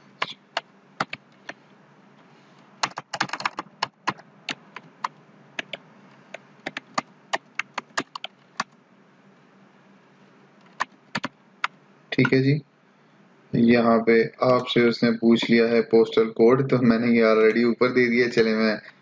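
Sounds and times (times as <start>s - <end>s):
computer keyboard typing: 0.2s - 1.6s, 2.8s - 8.8s, 10.6s - 12.4s.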